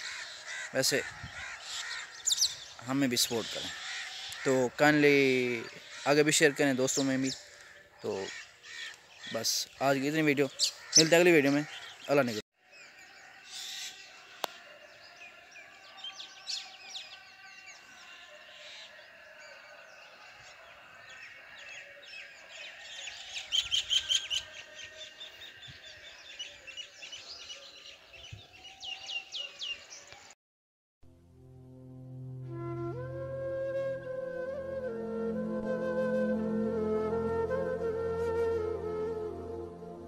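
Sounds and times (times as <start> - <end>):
birds chirping in chorus: 0.0 - 30.4.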